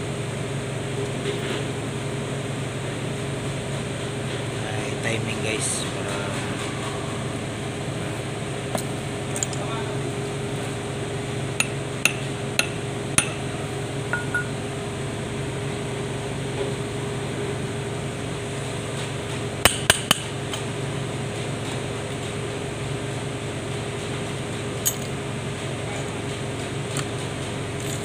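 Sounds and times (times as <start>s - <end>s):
steady low hum: 0.0s - 21.7s
steel tools clinking on metal: 14.1s - 14.6s.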